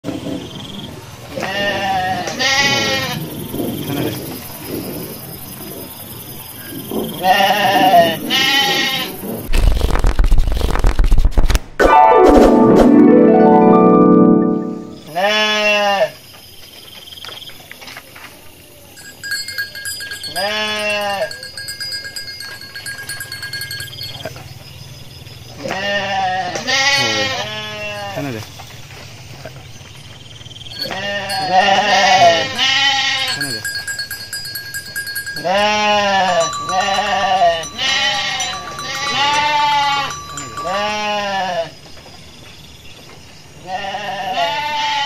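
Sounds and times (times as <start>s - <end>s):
sheep bleating: 1.3s - 3.2s, 7.2s - 9.2s, 15.1s - 16.2s, 20.3s - 21.4s, 25.6s - 28.2s, 30.8s - 33.7s, 35.4s - 41.8s, 43.6s - 45.0s.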